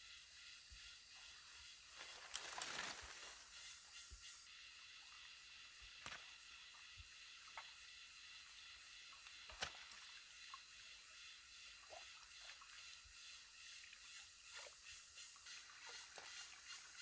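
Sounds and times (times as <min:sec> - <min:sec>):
steady high hiss: 0:00.0 - 0:17.0
small splashes and drips: 0:09.1 - 0:10.8.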